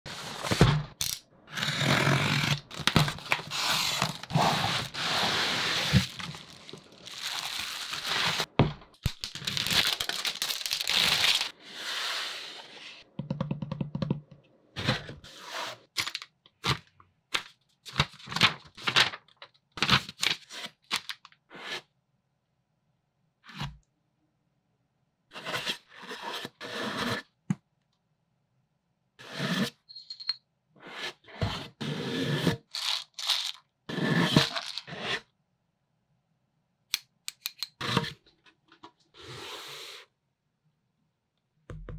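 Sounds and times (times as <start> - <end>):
cardboard box scraping: 1.6 - 8.5
packing tape tearing: 2.6 - 11.5.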